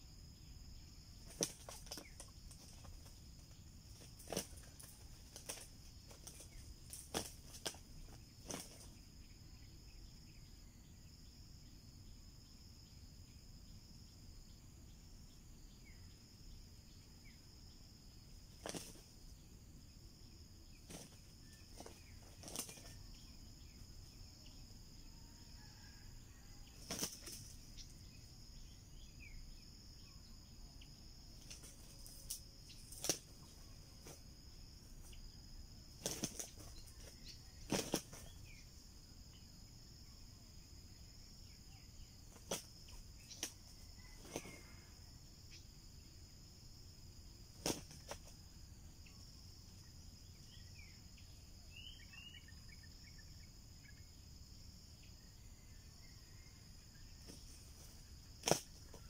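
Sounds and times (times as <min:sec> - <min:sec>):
high insect drone: 0:00.0 - 0:59.0
roosters flapping wings: 0:01.2 - 0:09.0, 0:18.6 - 0:19.2, 0:20.8 - 0:23.0, 0:26.8 - 0:27.6, 0:31.4 - 0:34.2, 0:36.0 - 0:38.4, 0:42.3 - 0:42.8, 0:43.4 - 0:44.6, 0:47.6 - 0:48.3, 0:57.2 - 0:59.0.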